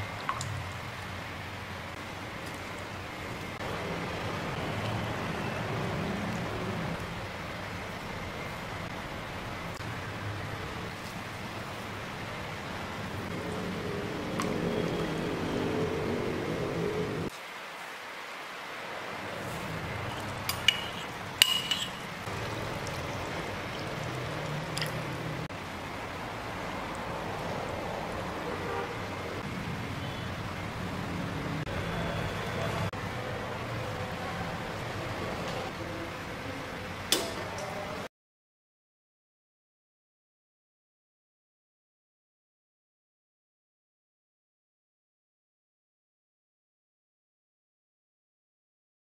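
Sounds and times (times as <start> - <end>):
broth simmering with bubbling hiss: 0.0 - 38.1
spatula stirring broth: 19.4 - 25.4
liquid pouring into pan: 20.1 - 25.2.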